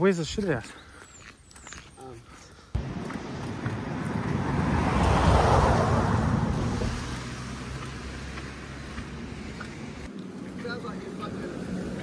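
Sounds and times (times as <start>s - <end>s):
truck driving past: 2.8s - 12.0s.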